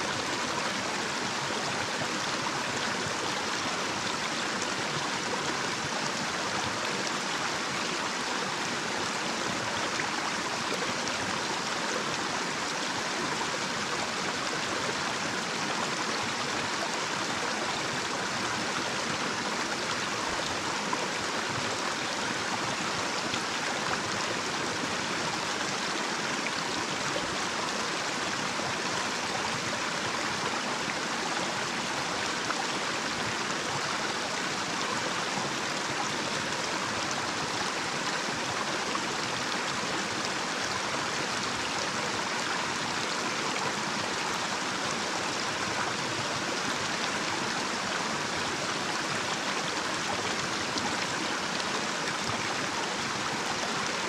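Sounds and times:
stream flowing over cascade: 0.0s - 54.0s.

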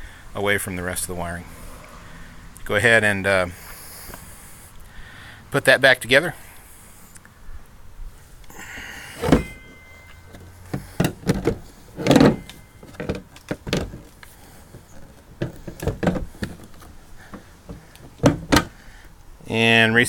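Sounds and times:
plastic knocks and clunks: 9.2s - 9.6s, 10.3s - 18.8s.

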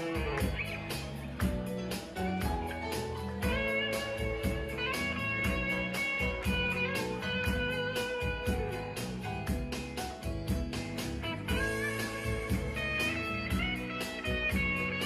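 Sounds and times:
bass line: 0.0s - 15.0s
electric guitar: 0.0s - 15.0s
steady drum beat: 3.4s - 6.8s, 7.5s - 15.0s.

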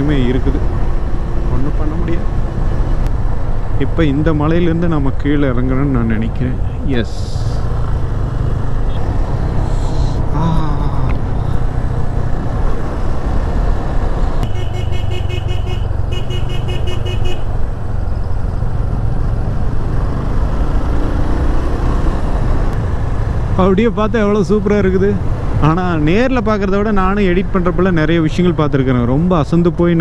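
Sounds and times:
vehicle horn blasts: 14.4s - 17.5s.

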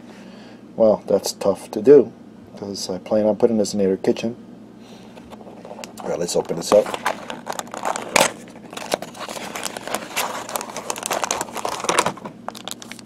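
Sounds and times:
cardboard box rustling and crinkling: 5.4s - 13.0s.

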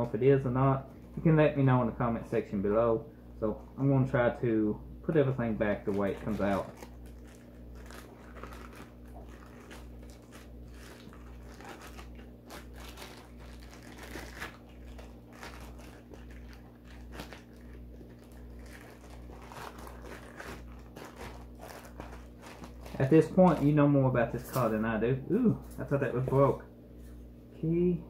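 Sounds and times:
low steady hum: 0.0s - 28.0s
plastic bag crinkling: 5.6s - 24.8s.

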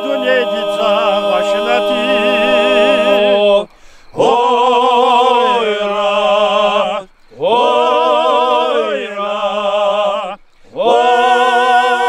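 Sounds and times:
low vocal drone: 0.0s - 12.0s
men singing a cappella: 0.0s - 12.0s.

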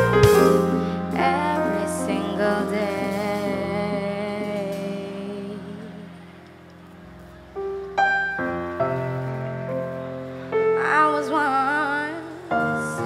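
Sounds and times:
band closing chord: 0.0s - 5.0s
woman singing sustained note: 0.6s - 6.7s, 10.5s - 13.0s.

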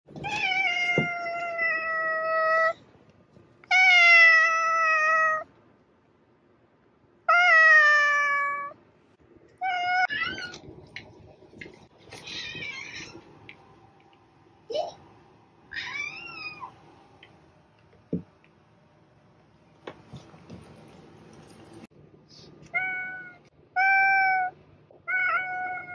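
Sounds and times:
cats meowing: 9.6s - 10.7s, 12.0s - 13.3s, 15.7s - 16.8s, 22.7s - 25.9s.

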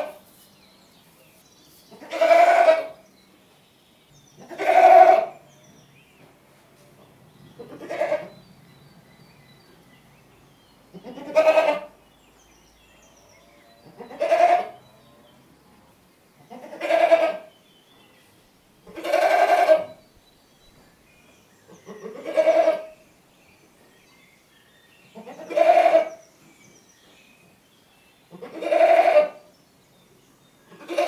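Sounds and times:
goat bleating: 1.9s - 3.0s, 4.4s - 5.3s, 7.7s - 8.3s, 11.0s - 11.9s, 13.9s - 14.8s, 16.5s - 17.5s, 18.9s - 20.0s, 21.9s - 22.9s, 25.2s - 26.2s, 28.3s - 29.4s, 30.8s - 31.0s.

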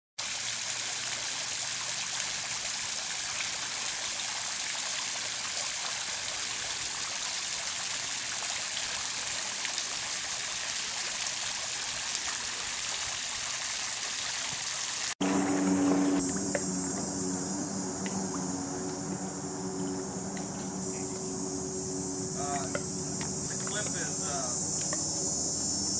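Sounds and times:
fountain water splashing: 0.2s - 25.9s
steady low hum: 15.2s - 25.9s.

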